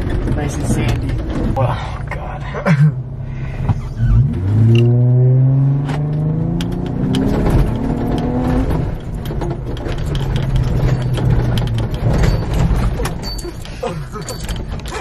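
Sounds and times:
car engine accelerating: 0:02.9 - 0:13.3
knocks and clicks of car jolting: 0:06.7 - 0:15.0.

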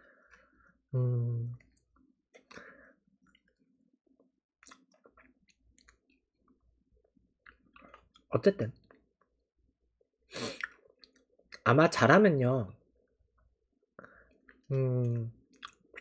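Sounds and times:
man humming: 0:01.0 - 0:01.6
man chewing food: 0:01.5 - 0:09.4, 0:10.0 - 0:11.6, 0:13.0 - 0:14.7, 0:15.4 - 0:16.0.

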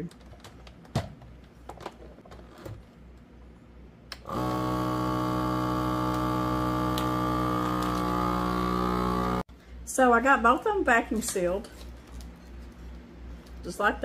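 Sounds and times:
vacuum pump humming: 0:04.2 - 0:09.5.

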